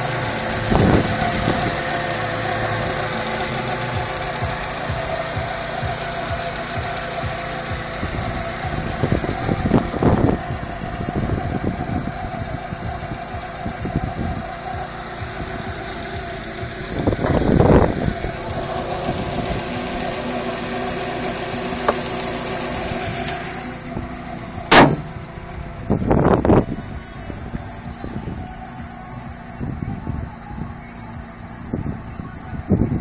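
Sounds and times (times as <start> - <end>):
car engine idling: 0.0 - 33.0
high whine: 0.0 - 33.0
car bonnet slamming shut: 21.8 - 22.3, 24.7 - 25.3.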